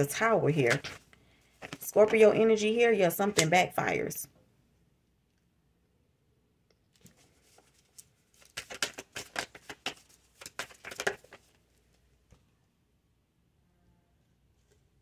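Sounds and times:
cards flapping while shuffled: 1.6 - 2.2, 7.0 - 11.6
cards tapping: 8.4 - 11.5.

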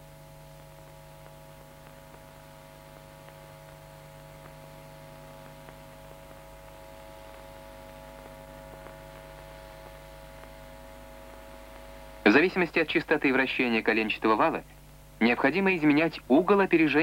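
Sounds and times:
electrical hum: 0.0 - 17.0
faint clicks: 0.6 - 11.9.

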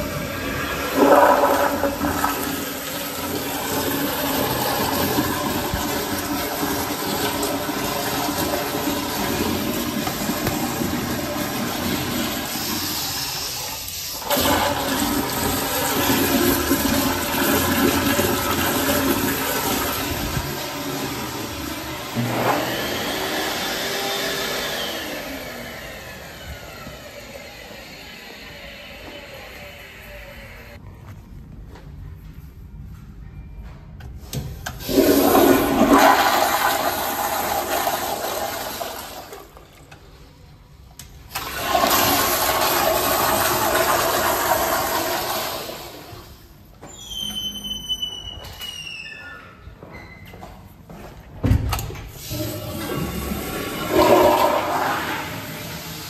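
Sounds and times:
toilet flushing: 0.0 - 30.8, 34.6 - 40.2, 41.0 - 47.2, 51.8 - 56.0.

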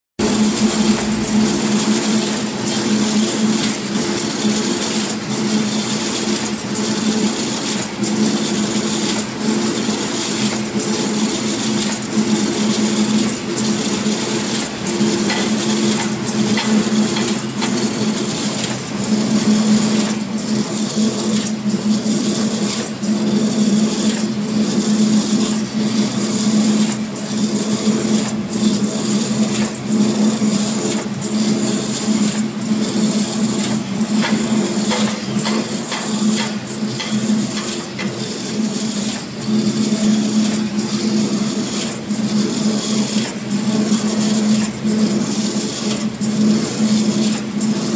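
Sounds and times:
machine hum: 0.2 - 4.7.

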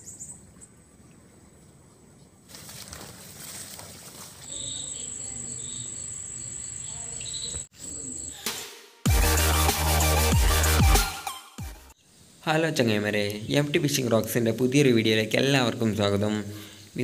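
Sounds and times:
electronic music with deep bass: 9.1 - 11.9.

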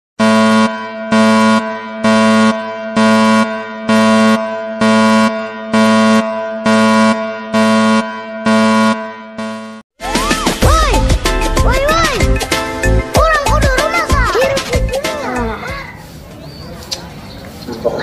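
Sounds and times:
buzzy electronic horn tone: 0.2 - 9.8.

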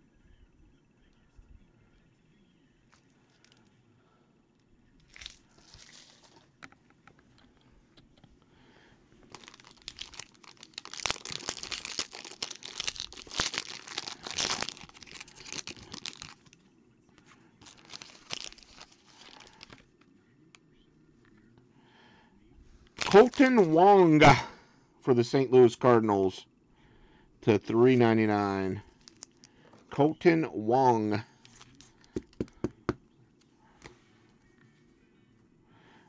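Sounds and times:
foil pack tearing and crinkling: 5.1 - 6.4, 9.3 - 16.6, 17.6 - 19.8, 23.0 - 23.8, 29.0 - 29.4.

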